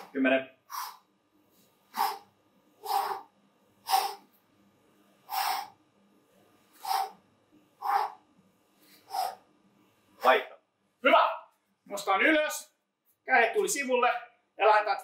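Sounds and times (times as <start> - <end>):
man breathing out hard: 0.7 - 1.0, 1.9 - 4.3, 5.3 - 5.8, 6.8 - 7.2, 9.0 - 9.4.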